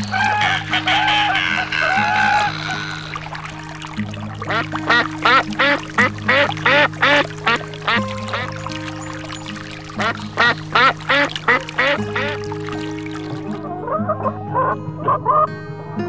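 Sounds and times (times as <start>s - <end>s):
short arched animal calls: 0.0s - 3.6s
music with held notes: 0.0s - 16.0s.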